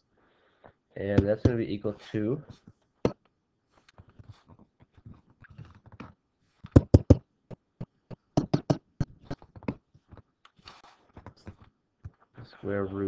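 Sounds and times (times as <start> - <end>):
sharp clicks and taps: 5.9 - 10.6.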